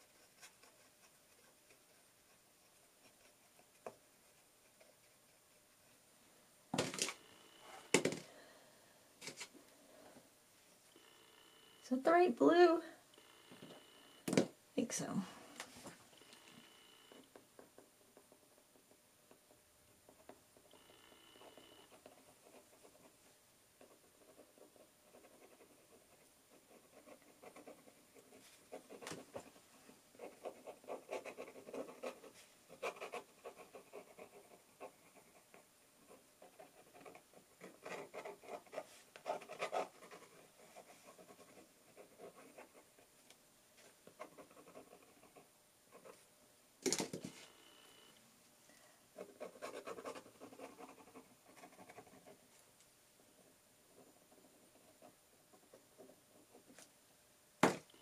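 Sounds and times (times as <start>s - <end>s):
pen nib scratching paper: 0.0s - 6.0s, 20.1s - 23.2s, 23.8s - 43.1s, 44.1s - 46.2s, 49.2s - 52.4s, 53.4s - 56.8s.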